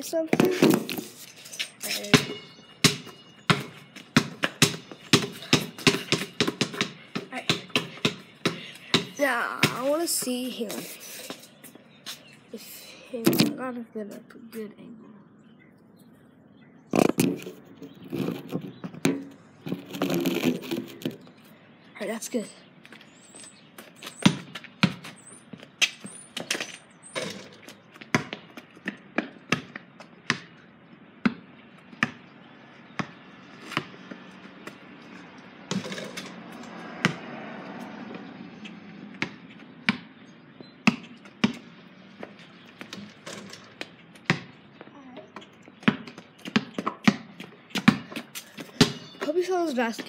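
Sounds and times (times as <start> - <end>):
basketball bouncing on concrete: 0.2 - 1.1, 1.9 - 10.8, 17.0 - 21.3, 23.8 - 30.6, 31.2 - 34.9, 35.7 - 38.3, 38.9 - 50.0
ball hitting hoop: 2.1 - 9.9, 18.9 - 19.8, 27.1 - 30.5, 37.0 - 37.2, 40.8 - 41.6, 45.9 - 49.2.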